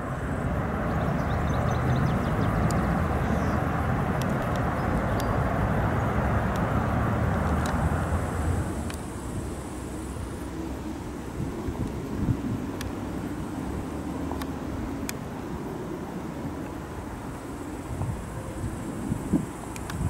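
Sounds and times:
low outdoor rumble: 0.0 - 20.0
faint high clicks and chirps: 1.3 - 3.6, 4.2 - 5.5, 19.6 - 20.0.

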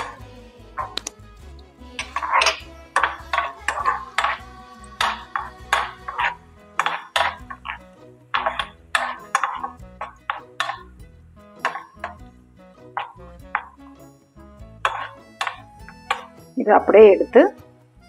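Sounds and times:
background music: 0.0 - 18.0
wooden spatula scraping a pan: 2.0 - 7.8.

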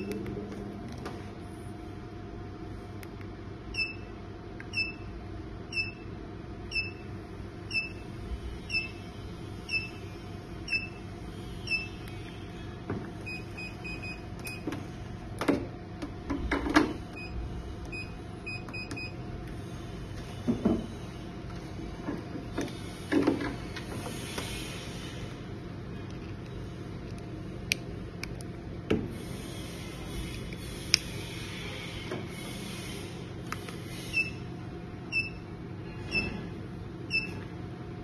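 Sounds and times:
machine hum: 0.0 - 38.0
machine beeping: 3.7 - 4.1, 6.7 - 7.1, 7.7 - 12.1, 13.2 - 14.7, 16.8 - 19.2, 34.0 - 34.5, 35.1 - 36.4, 37.1 - 37.4.

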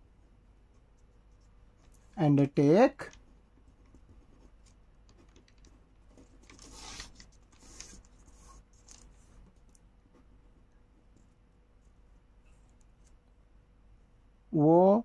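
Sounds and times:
pen scratching on paper: 3.6 - 4.6, 6.1 - 9.4
paper rustling: 3.8 - 9.8.

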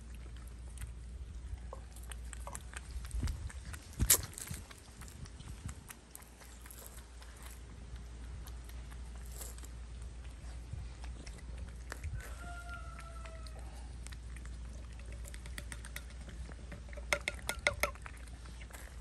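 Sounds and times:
cats eating wet food: 0.0 - 19.0.

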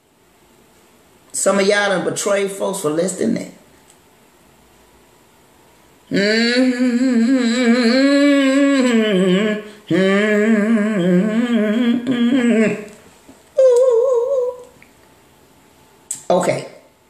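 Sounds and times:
woman humming: 6.1 - 13.0, 13.6 - 14.8.

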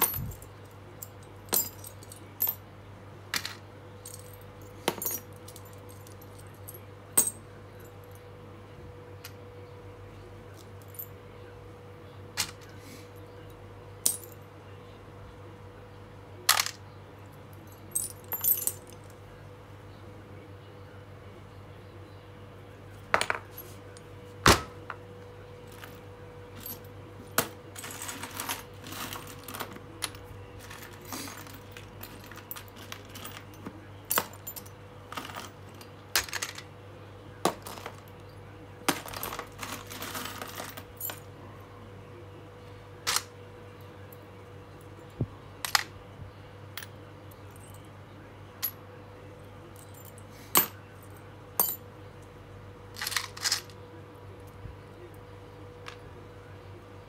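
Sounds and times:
rummaging through hardware: 0.0 - 0.5, 25.7 - 36.6, 37.5 - 38.1, 38.9 - 41.2, 53.0 - 53.7
faint steady hum: 0.0 - 57.0.

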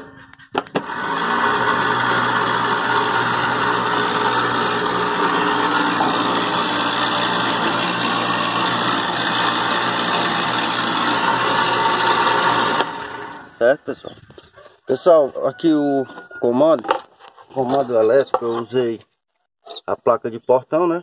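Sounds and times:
small electric motor with gearbox: 0.8 - 13.6.

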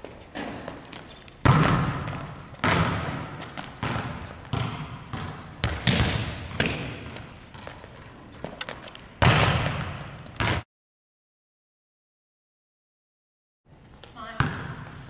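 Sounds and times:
volleyball smacks echoing in gym: 1.4 - 7.8, 8.4 - 10.6, 14.1 - 15.0.

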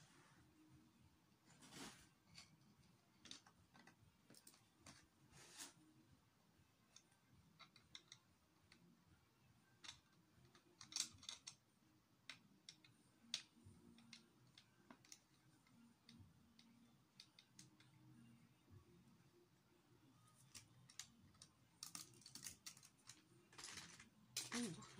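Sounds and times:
plastic bricks clicking: 9.8 - 11.6.

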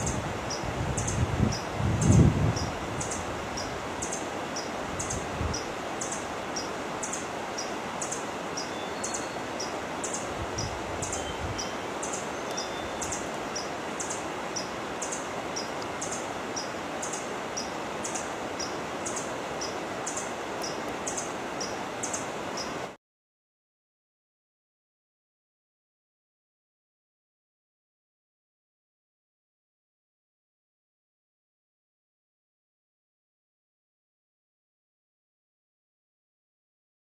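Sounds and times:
steady forest hiss: 0.0 - 23.0.

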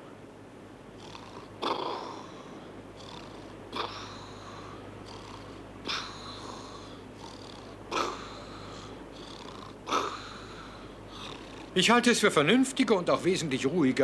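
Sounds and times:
cartoon snoring: 1.0 - 11.8.

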